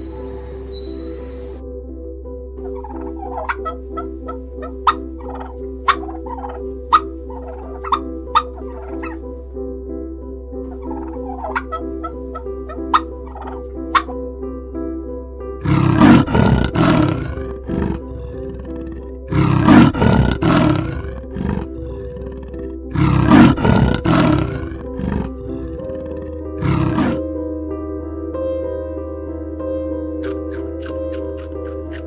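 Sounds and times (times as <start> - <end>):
soft background music: 0.0 - 32.0
animal calling loudly: 2.6 - 9.3, 10.7 - 14.1, 15.6 - 27.2.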